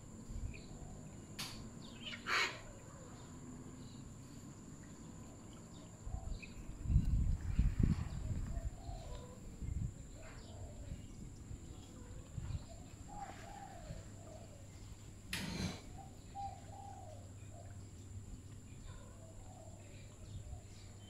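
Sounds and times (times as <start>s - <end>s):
dove cooing: 8.5s - 9.4s, 12.6s - 14.7s, 15.4s - 17.8s.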